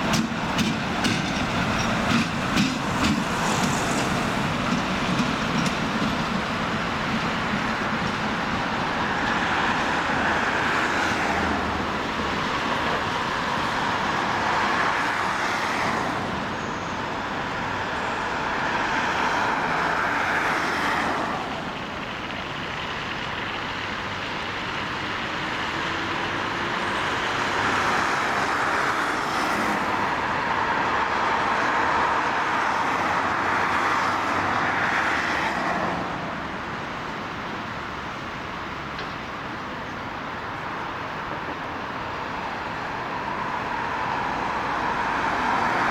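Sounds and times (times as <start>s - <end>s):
diesel locomotive engine roaring: 0.0s - 45.9s.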